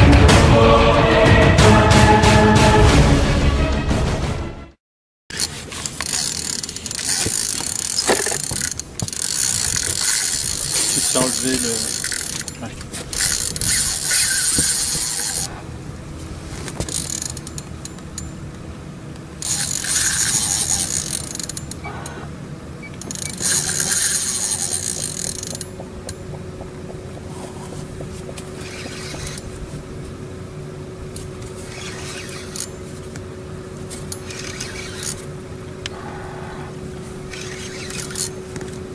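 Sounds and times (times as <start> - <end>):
fishing reel drag buzzing: 5.3 - 15.6, 19.4 - 22.3, 23.0 - 25.8, 27.3 - 29.6, 31.2 - 32.9, 34.1 - 35.3, 35.9 - 38.4
mechanical reel noise: 5.3 - 15.7, 16.6 - 18.4, 19.3 - 30.3, 31.0 - 33.2, 33.8 - 38.8.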